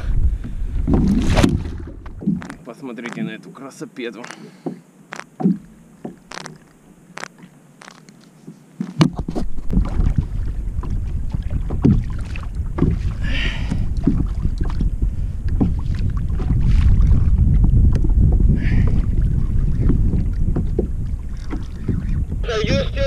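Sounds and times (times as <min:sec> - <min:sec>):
wind buffeting microphone: 0:00.0 - 0:02.6, 0:09.0 - 0:23.0.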